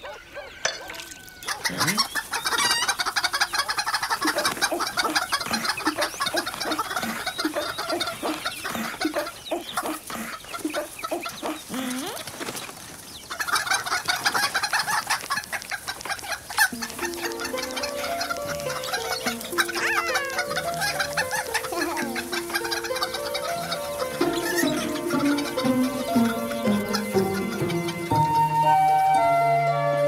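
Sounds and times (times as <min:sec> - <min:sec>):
hens clucking: 0:00.0 - 0:30.0.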